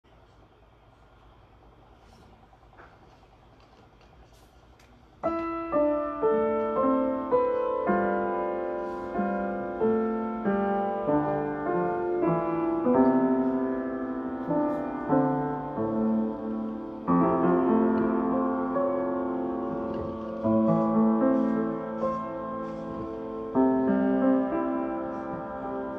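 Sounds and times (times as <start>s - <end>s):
piano music: 5.2s - 25.9s.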